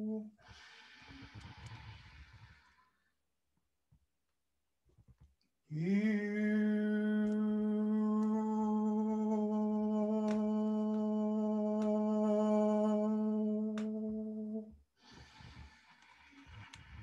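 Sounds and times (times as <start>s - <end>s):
man humming a steady note: 0.0s - 0.4s, 5.7s - 14.7s.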